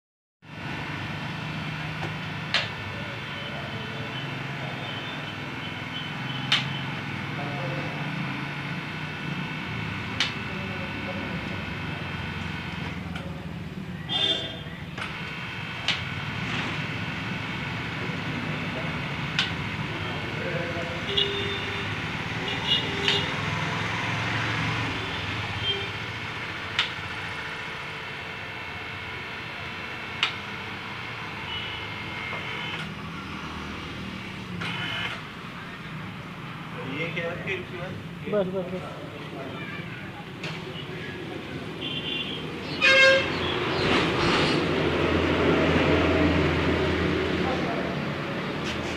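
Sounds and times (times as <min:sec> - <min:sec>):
hydraulic pump humming: 0:00.5 - 0:38.4, 0:39.9 - 0:48.9
sharp click: 0:06.5 - 0:06.8.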